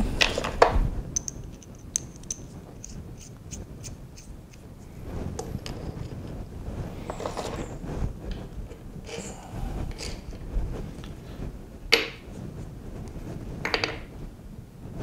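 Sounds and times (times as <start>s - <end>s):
metallic ticks of nut spinning: 1.2s - 4.6s.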